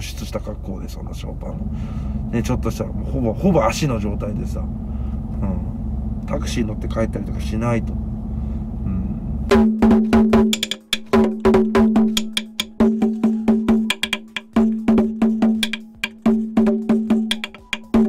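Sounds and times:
hand drum beaten with sticks: 9.5s - 18.0s.

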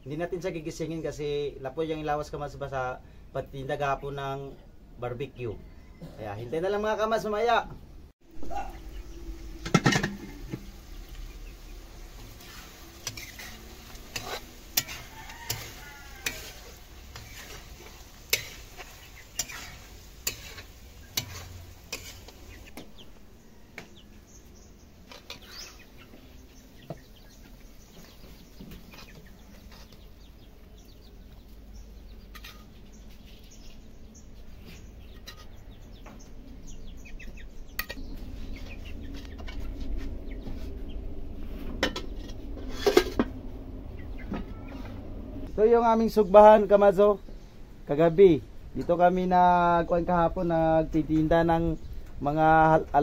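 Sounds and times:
soft sizzle: 8.2s - 53.0s
chickens clucking: 8.4s - 45.2s
spatula and lid clanking on wok: 9.6s - 11.2s, 12.2s - 22.9s.

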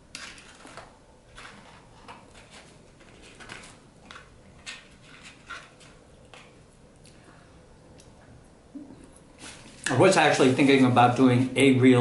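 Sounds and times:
rustling of fries in cardboard tray: 0.1s - 6.0s.

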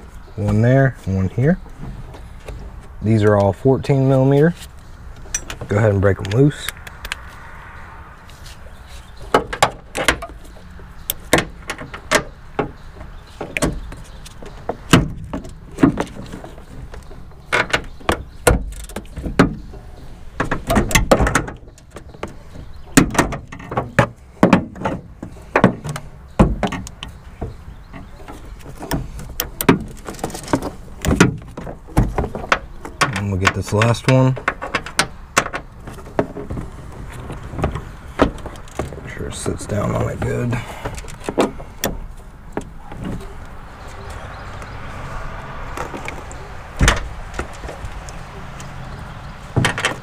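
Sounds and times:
metal knocks: 49.5s - 50.0s.

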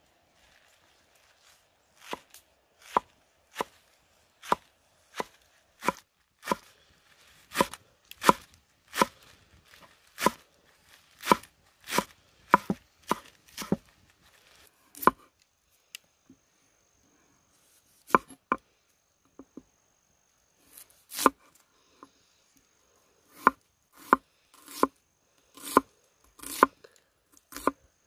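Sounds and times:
knife chopping on wooden board: 2.8s - 3.8s, 4.4s - 6.7s, 7.5s - 9.2s, 10.2s - 10.4s, 11.2s - 13.8s, 15.0s - 15.3s, 18.1s - 18.4s, 23.3s - 24.9s, 25.6s - 25.8s, 26.4s - 26.7s, 27.5s - 27.8s.

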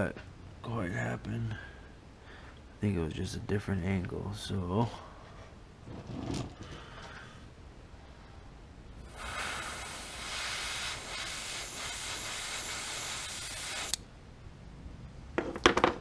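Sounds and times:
airbrush hissing: 9.0s - 14.0s.

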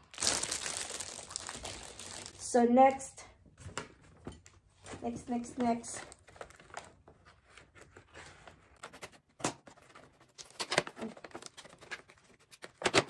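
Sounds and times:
paper bag rustling and crinkling: 5.7s - 8.4s.

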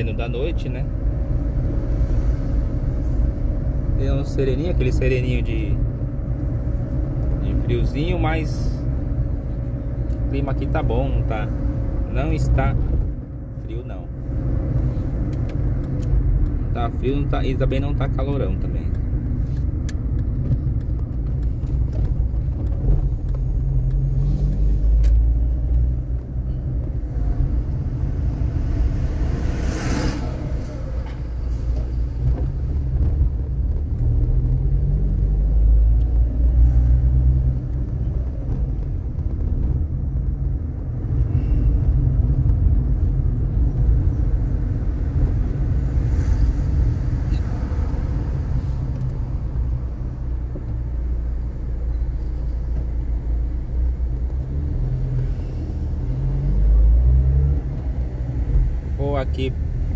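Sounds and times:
road noise: 0.0s - 59.9s
car engine revving: 23.3s - 40.0s.

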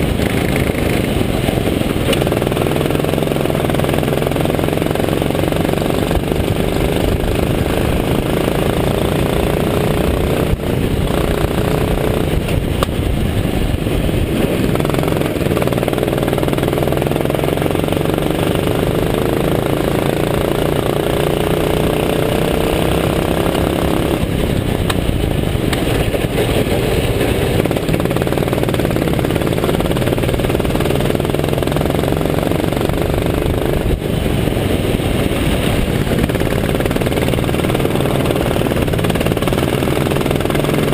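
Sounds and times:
go-kart engine revving: 0.0s - 40.9s.

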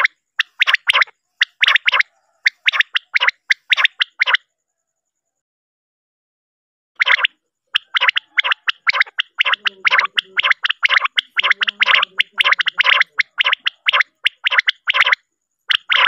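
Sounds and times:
quail calling: 0.0s - 4.4s, 7.0s - 16.0s.

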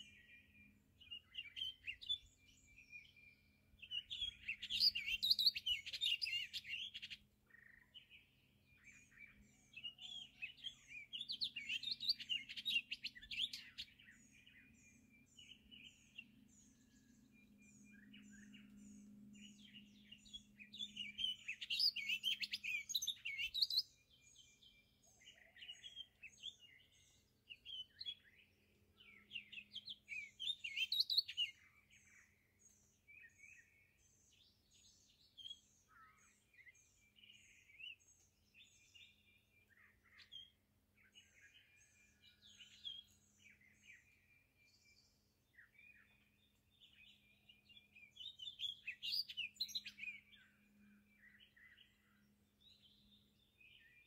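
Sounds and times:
bird warbling song: 0.0s - 54.0s.

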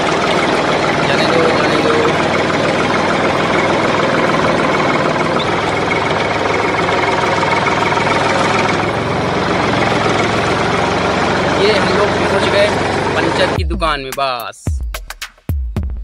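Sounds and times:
tractor engine chugging: 0.0s - 14.6s.

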